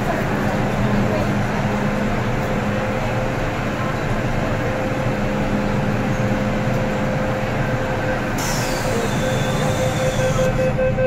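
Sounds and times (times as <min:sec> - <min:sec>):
moving crowd: 0:00.0 - 0:10.9
train hum and rumble: 0:00.0 - 0:11.0
hiss: 0:08.4 - 0:10.2.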